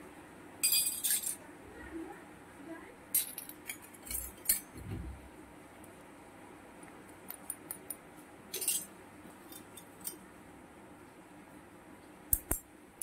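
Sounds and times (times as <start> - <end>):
metal utensils clinking: 0.6 - 1.4, 3.2 - 4.7, 8.5 - 10.2
soft thump: 4.8 - 5.3.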